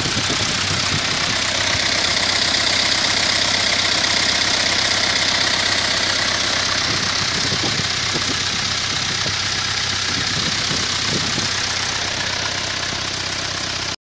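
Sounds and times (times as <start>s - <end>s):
diesel engine idling: 0.0s - 14.0s.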